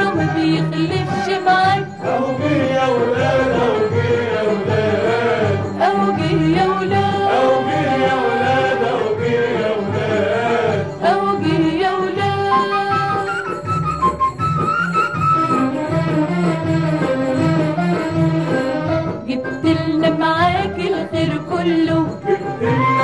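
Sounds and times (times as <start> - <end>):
women singing in unison: 0.0 - 13.5, 19.3 - 23.0
lively instrumental backing: 0.0 - 23.0.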